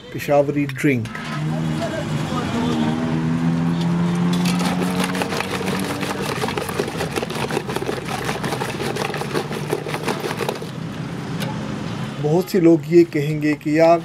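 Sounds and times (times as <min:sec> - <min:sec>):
engine drone: 0:01.1 - 0:11.3
churning stick clattering in pot: 0:04.2 - 0:10.7.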